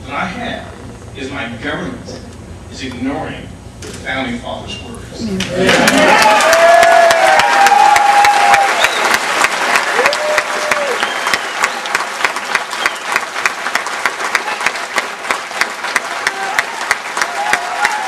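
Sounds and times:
audience applauding: 5.4s - 18.0s.

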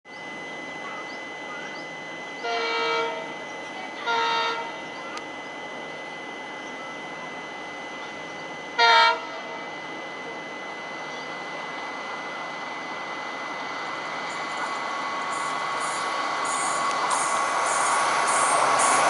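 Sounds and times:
locomotive air horn blasts: 2.4s - 3.3s, 4.0s - 4.8s, 8.8s - 9.3s.

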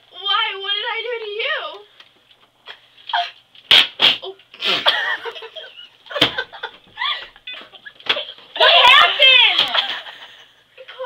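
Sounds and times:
girls laughing: 4.6s - 10.6s.

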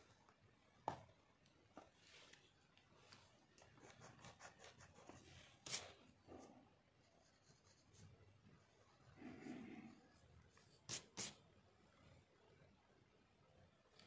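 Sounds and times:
pencil scratching on paper: 3.6s - 6.0s, 7.0s - 8.2s.

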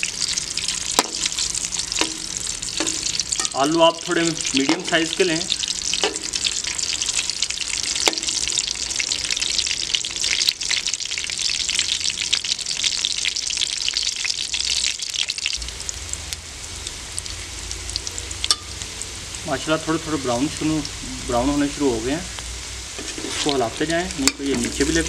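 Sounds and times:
potatoes sizzling in hot oil: 0.0s - 25.0s
metal spoon knocking pan: 1.0s - 1.3s, 2.0s - 3.8s, 4.6s - 5.0s, 6.0s - 6.5s, 8.0s - 8.5s, 24.2s - 24.9s.

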